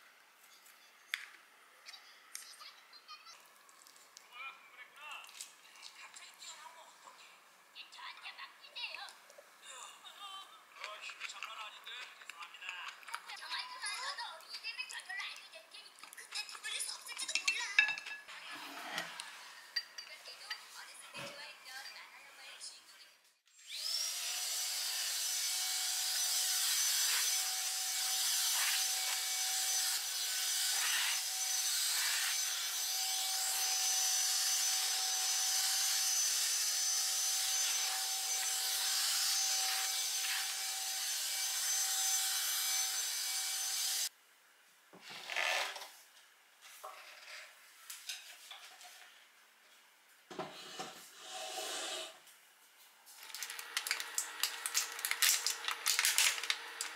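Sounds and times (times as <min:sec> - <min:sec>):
vacuum cleaner running: 0:23.6 - 0:24.8.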